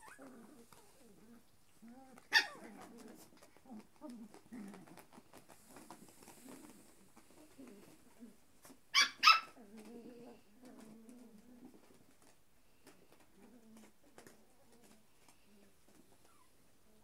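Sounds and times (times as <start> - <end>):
puppy play-growling: 0.0 - 17.0
puppy yapping: 2.1 - 3.5, 8.9 - 9.6.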